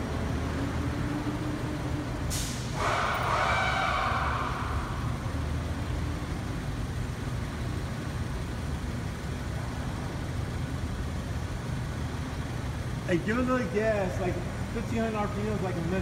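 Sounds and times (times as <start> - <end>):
car engine idling rough: 0.0 - 16.0
hiss: 2.3 - 3.0.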